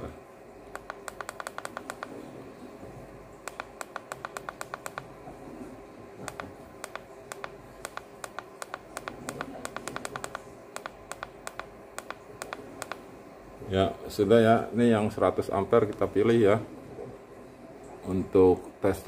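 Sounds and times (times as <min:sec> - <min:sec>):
battery tester button clicks: 0:00.8 - 0:02.1, 0:06.3 - 0:13.0.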